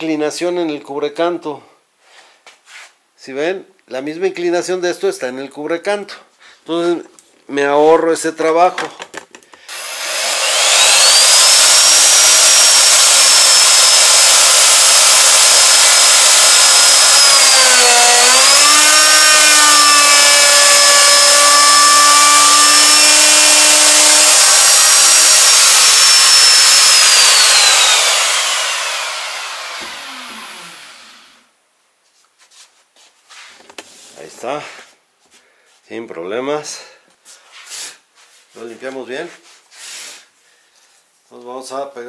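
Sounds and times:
electric router whining: 9.7 - 31.4.

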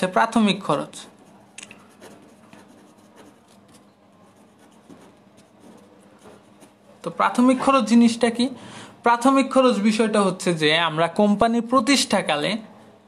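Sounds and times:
pen scratching on paper: 0.0 - 7.9.

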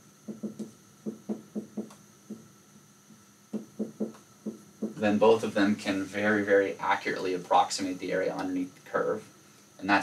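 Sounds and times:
marker tapping on a whiteboard: 0.2 - 2.5, 3.5 - 5.0.

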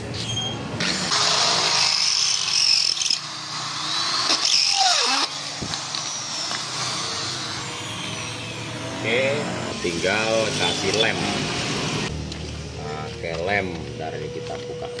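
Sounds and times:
electric drill grinding through metal: 0.8 - 12.1.

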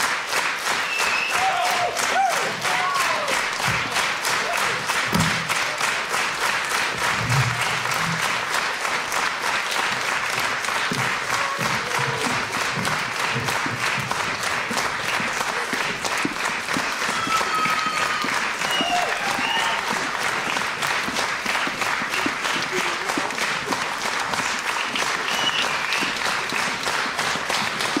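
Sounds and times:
audience clapping in rhythm: 0.0 - 28.0
audience whistles: 0.7 - 1.9, 17.0 - 20.0, 24.7 - 26.4.

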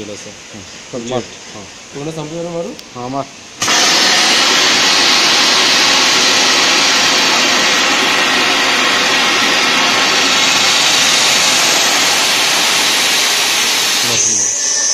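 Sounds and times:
water mist spray hissing: 3.6 - 14.9.

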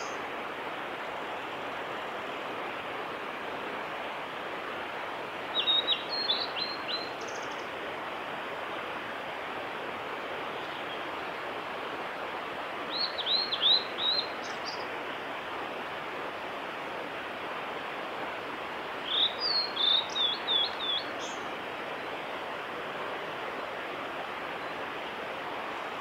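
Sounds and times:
steady rushing noise: 0.0 - 5.6
bird singing whistled notes: 5.5 - 7.6, 12.9 - 14.9, 19.0 - 21.4.

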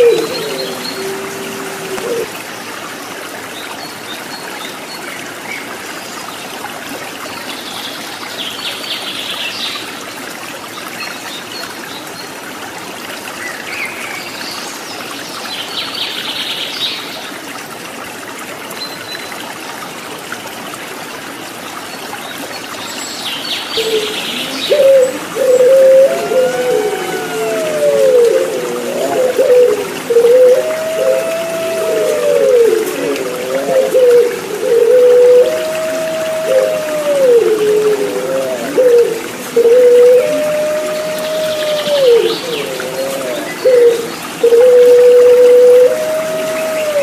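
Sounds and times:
dove cooing: 0.0 - 2.3, 23.8 - 47.0
water trickling: 0.0 - 15.9, 16.5 - 47.0.

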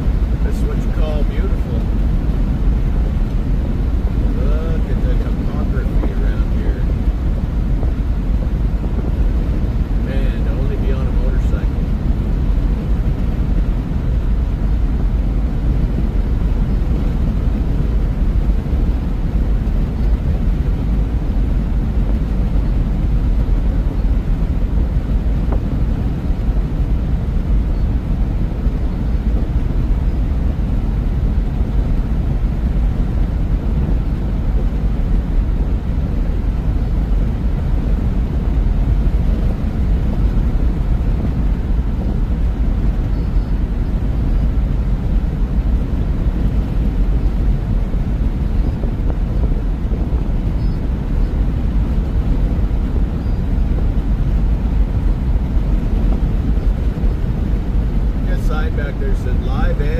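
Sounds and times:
vehicle engine and tyre rumble: 0.0 - 59.9.

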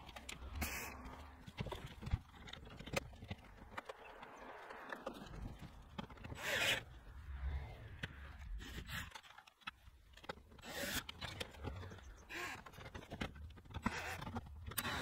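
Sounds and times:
cordless drill driving screws: 13.8 - 15.0.

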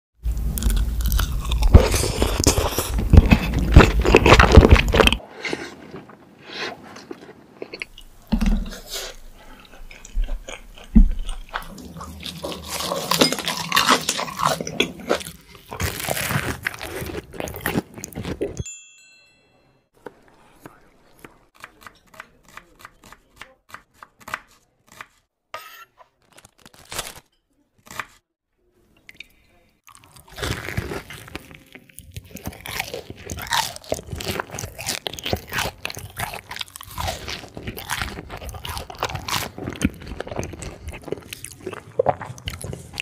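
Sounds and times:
crunching and chewing crispy food: 0.3 - 18.6, 29.8 - 43.0.

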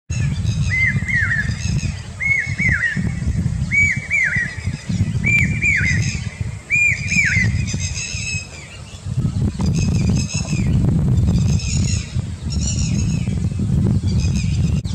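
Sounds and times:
bird calling shrill notes: 0.1 - 9.0
steady low rumble: 0.1 - 14.9.

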